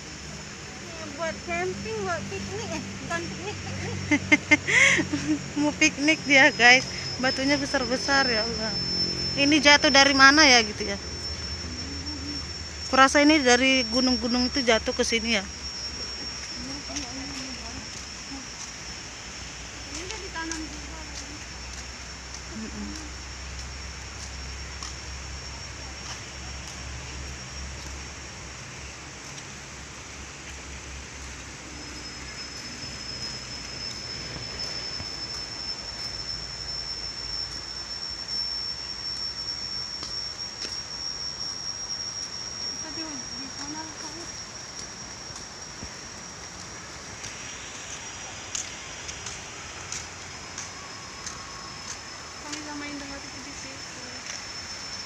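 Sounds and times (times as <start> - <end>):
high-pitched insect whine: 0.0 - 55.0
footsteps on pavement: 19.7 - 25.3, 25.9 - 28.2, 43.6 - 54.5.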